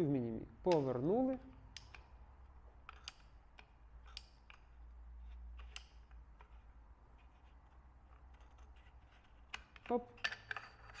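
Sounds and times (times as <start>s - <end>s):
faint metal clicks and taps: 0.7s - 2.2s.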